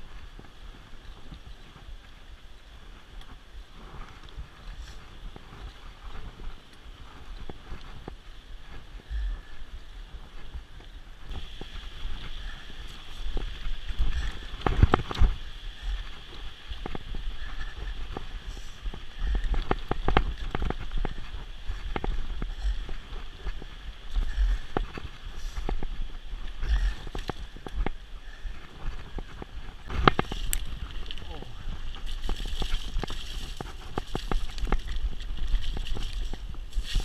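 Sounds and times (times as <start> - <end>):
mountain bike rattling and clicking: 0.0 - 37.0
wind buffeting microphone: 0.0 - 37.0
river rushing hiss: 8.5 - 37.0.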